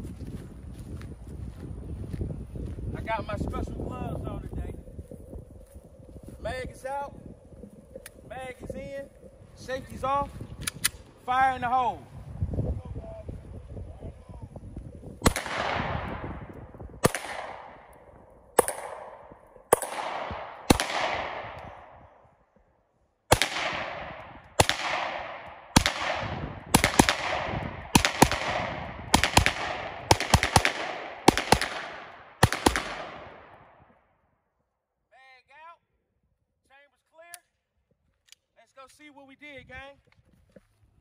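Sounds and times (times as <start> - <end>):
pistol shots with long echo: 15.2 - 22.2, 23.3 - 33.8.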